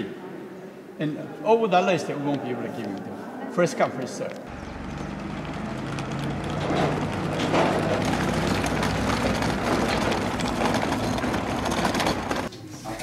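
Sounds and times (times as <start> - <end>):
suitcases rattling over cobblestones: 4.4 - 12.5.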